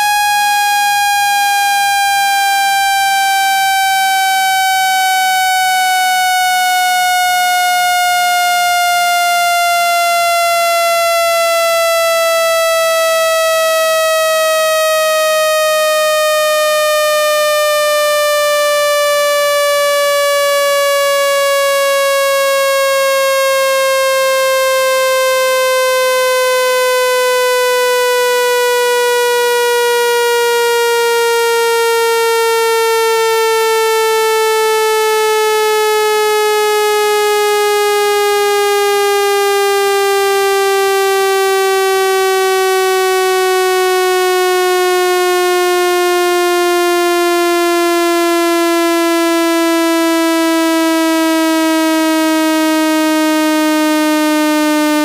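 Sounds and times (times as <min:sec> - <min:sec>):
buzzy electronic tone sliding down: 0:00.0 - 0:08.4.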